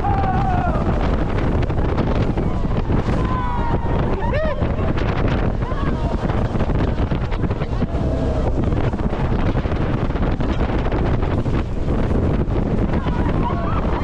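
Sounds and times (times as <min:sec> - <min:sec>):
boat and water rushing: 0:00.0 - 0:14.0
wind buffeting microphone: 0:00.0 - 0:14.0.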